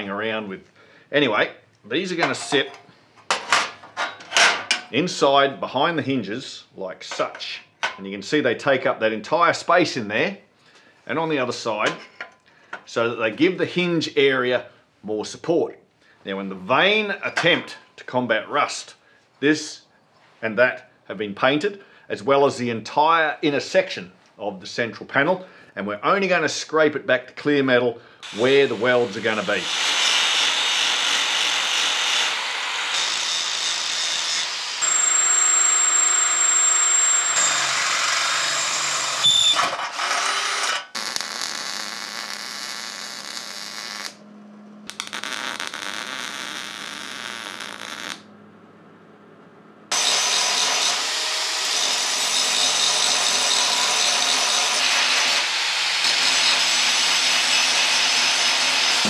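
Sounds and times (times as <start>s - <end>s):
angle grinder grinding steel: 28.2s - 41.3s, 49.9s - 57.7s
electric welding crackle: 34.8s - 37.5s, 41.0s - 44.2s, 44.9s - 48.2s.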